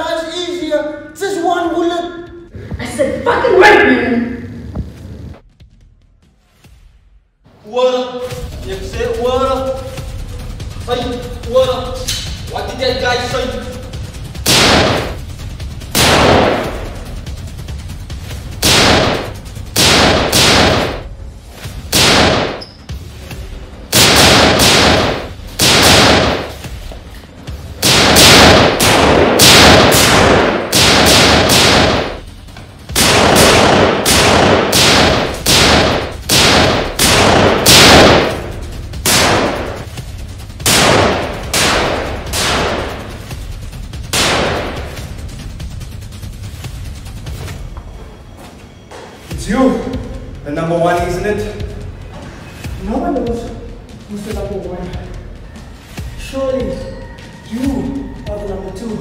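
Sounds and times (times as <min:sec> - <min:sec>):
steady low hum: 0:08.4 - 0:48.9
handgun shots: 0:18.6 - 0:21.0, 0:21.9 - 0:22.6, 0:24.0 - 0:26.7, 0:27.8 - 0:32.2, 0:33.0 - 0:38.4, 0:39.1 - 0:39.8, 0:40.7 - 0:43.0.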